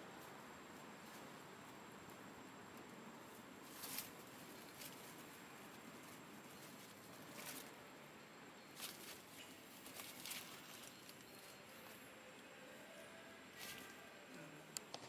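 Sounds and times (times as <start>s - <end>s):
soft fur rustles: 3.2s - 8.0s.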